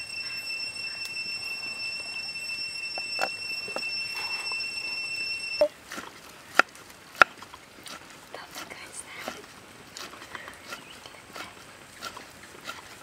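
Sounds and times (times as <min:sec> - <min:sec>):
high-pitched whine: 0:00.0 - 0:05.8.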